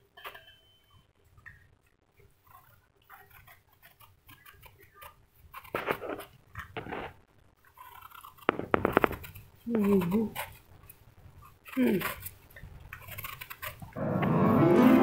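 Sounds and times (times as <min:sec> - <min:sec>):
knife scraping gourd skin: 0:03.1 - 0:10.7, 0:11.4 - 0:14.0.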